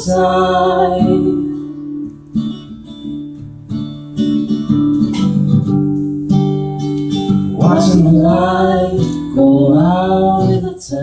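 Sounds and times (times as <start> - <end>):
person singing: 0.0 - 1.8, 7.5 - 11.0
acoustic guitar strumming: 0.0 - 11.0.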